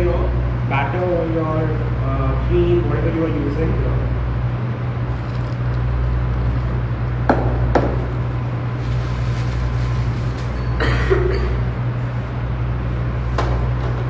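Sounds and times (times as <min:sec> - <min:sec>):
steady low hum: 0:00.0 - 0:14.0
batter being scraped: 0:05.1 - 0:07.0
knocks on steel mixing bowl: 0:07.3 - 0:08.1.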